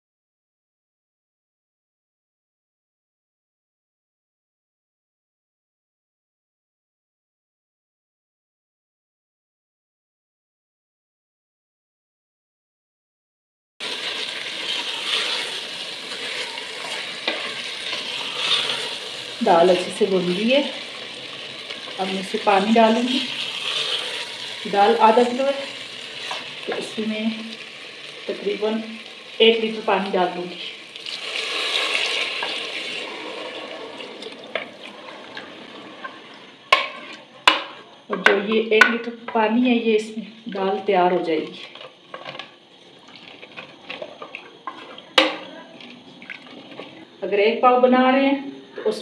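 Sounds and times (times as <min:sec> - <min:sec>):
lentils sizzling in oil: 0:13.8 - 0:37.8, 0:41.3 - 0:45.4
ladle stirring liquid: 0:14.1 - 0:20.1, 0:30.9 - 0:37.2, 0:41.5 - 0:47.0
water splashing into pot: 0:30.8 - 0:35.4, 0:46.2 - 0:46.9.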